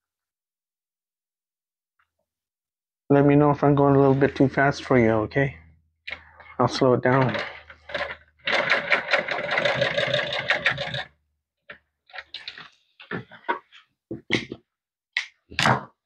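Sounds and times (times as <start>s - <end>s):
sewing machine stitching: 7.1s - 11.1s.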